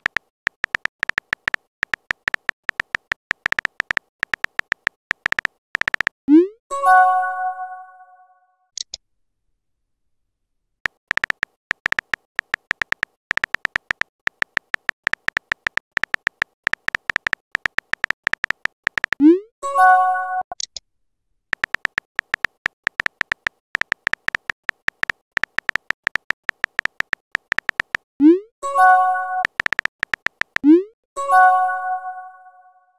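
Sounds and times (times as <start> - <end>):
synthetic keyboard clicks: 0.0 - 6.5, 10.8 - 19.4, 21.5 - 30.9.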